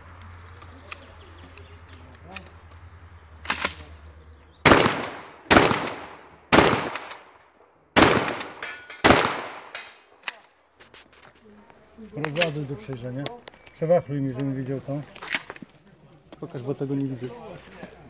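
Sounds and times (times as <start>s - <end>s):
gunshots with echo: 4.6s - 7.4s, 8.0s - 10.1s.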